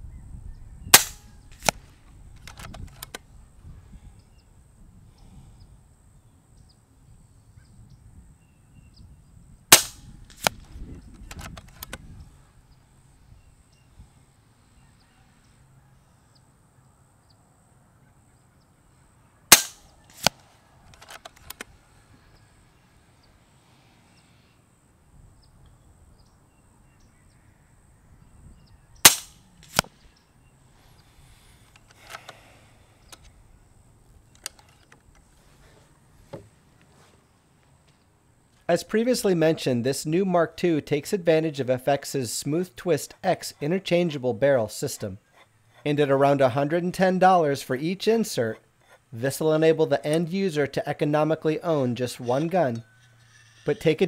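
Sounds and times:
air rifle shot crack: 0.9s - 1.9s, 9.7s - 10.7s, 19.5s - 20.5s, 29.0s - 30.0s.

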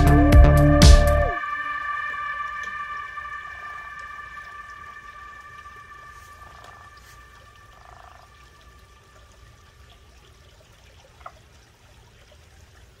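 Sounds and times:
high steady tones: 1.2s - 9.7s
frog croaking: 2.4s - 9.6s.

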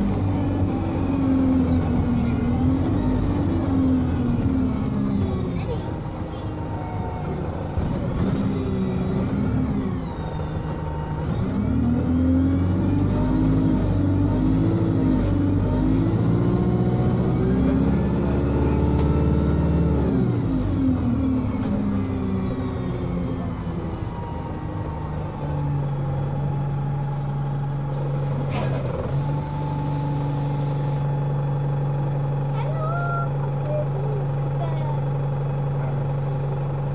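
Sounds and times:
bus engine revving: 0.0s - 36.9s.

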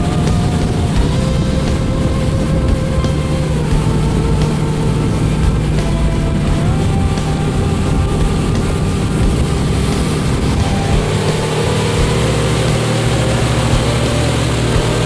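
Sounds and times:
boat engine droning: 0.0s - 15.0s.

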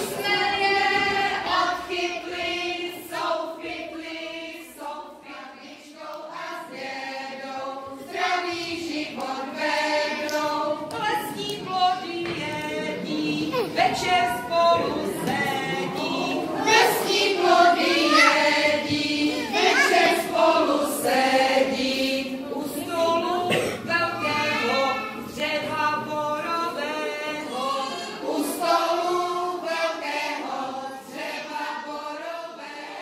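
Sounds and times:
children singing: 0.0s - 33.0s.

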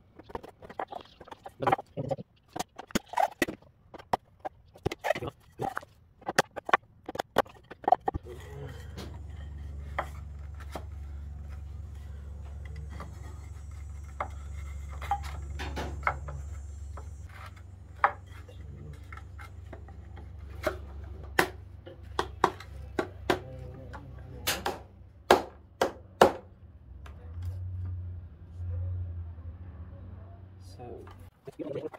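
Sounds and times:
steady low hum: 4.4s - 26.6s.

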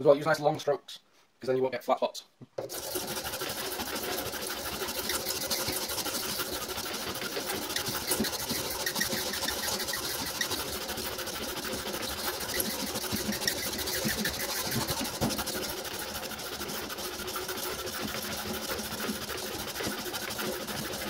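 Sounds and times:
hand file rasping: 2.6s - 21.0s.

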